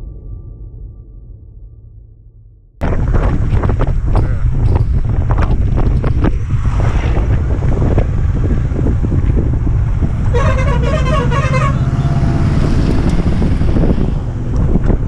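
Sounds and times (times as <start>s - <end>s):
motorcycle engine rumble: 2.8s - 15.0s
wind rush: 2.8s - 15.0s
truck horn warbling: 10.0s - 13.2s.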